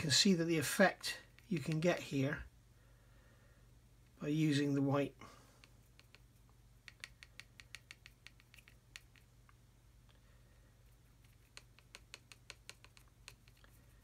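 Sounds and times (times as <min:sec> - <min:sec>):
paintbrush tapping on plastic: 0:05.6 - 0:09.6, 0:11.2 - 0:13.8.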